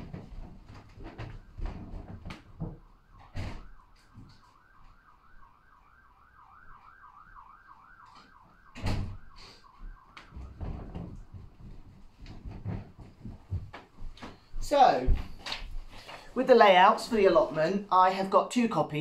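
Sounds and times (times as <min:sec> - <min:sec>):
knocks and thumps indoors: 0:00.0 - 0:04.5, 0:08.8 - 0:15.9
faint siren wailing: 0:00.0 - 0:12.4.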